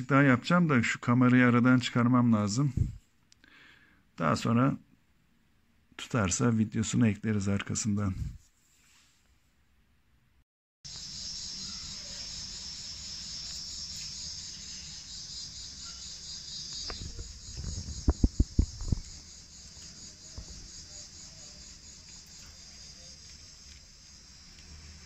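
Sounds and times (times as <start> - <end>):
insects chirping: 10.9 - 25.0.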